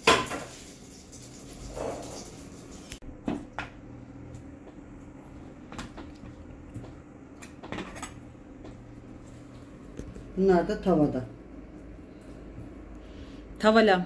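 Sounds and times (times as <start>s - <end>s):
kitchen knocks and clacks: 0.0s - 2.5s
steady low hum: 2.9s - 14.0s.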